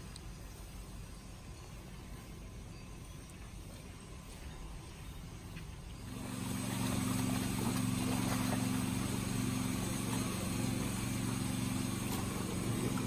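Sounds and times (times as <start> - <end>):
steady low hum: 0.0 - 13.0
fish splashing at water surface: 6.1 - 13.0.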